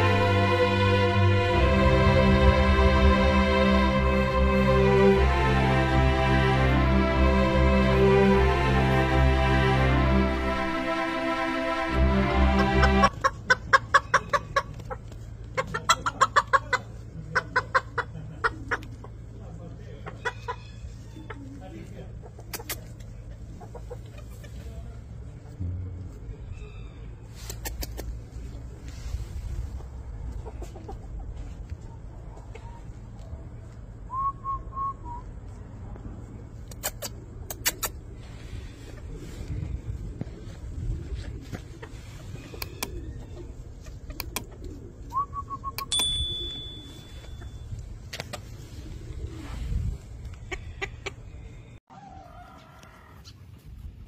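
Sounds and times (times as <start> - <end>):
background music: 0.0 - 13.2
steady low rumble: 0.0 - 13.7, 24.9 - 27.3, 34.9 - 42.1
chickens clucking: 12.5 - 25.0, 30.0 - 33.8, 36.6 - 45.8, 47.0 - 53.6.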